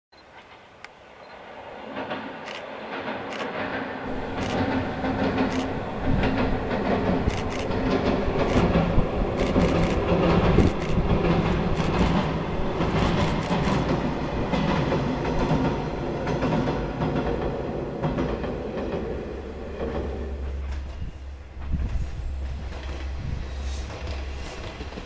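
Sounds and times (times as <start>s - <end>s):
train wheels clattering over rails: 1.4s - 25.0s
diesel engine drone: 4.1s - 14.2s.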